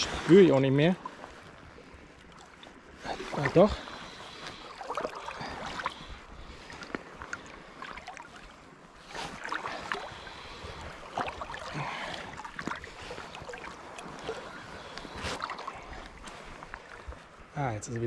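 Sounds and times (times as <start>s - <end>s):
sea water lapping and splashing: 0.0s - 18.0s.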